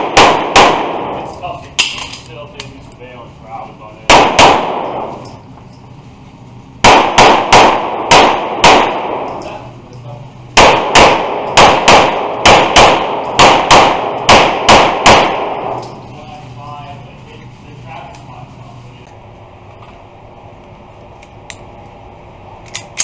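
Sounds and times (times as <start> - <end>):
pistol shots indoors: 0.0 - 2.2, 4.1 - 5.4, 6.8 - 9.7, 10.5 - 16.0.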